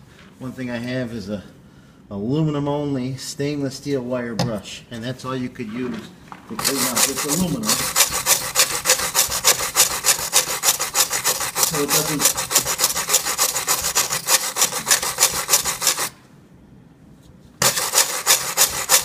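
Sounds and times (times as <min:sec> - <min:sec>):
wire brush scraping metal: 0:06.6 - 0:16.2, 0:17.6 - 0:19.0.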